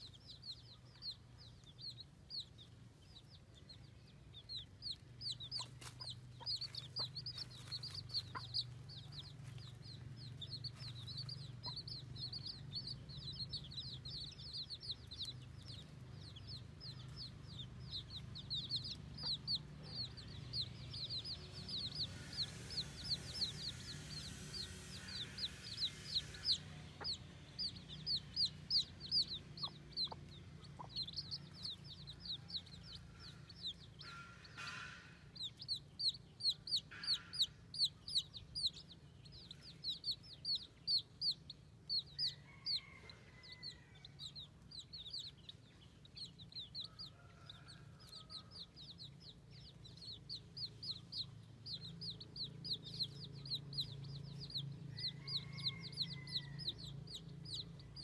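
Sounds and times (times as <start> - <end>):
low hum: 0.0 - 42.2
baby chicks peeping: 0.0 - 58.0
lower chick calls: 4.4 - 38.9.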